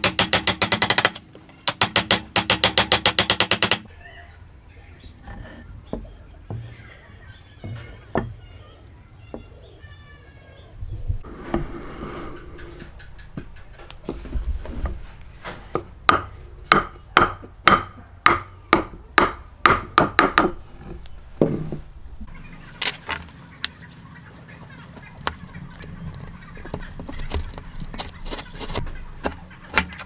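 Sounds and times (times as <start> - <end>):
wooden knocks: 0.0 - 3.8, 7.6 - 8.5
chisel paring wood: 0.0 - 3.9, 15.7 - 20.6.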